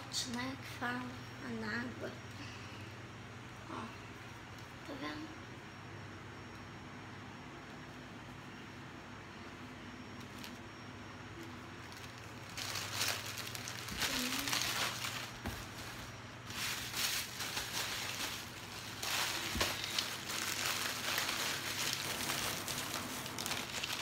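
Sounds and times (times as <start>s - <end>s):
plastic packaging crinkling: 10.1s - 10.7s, 11.4s - 24.0s.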